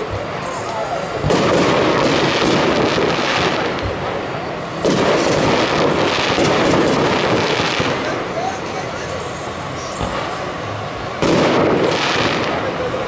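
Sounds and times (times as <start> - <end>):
firework shells bursting: 0.0 - 8.4, 11.2 - 12.9
firework crackle: 0.0 - 13.0.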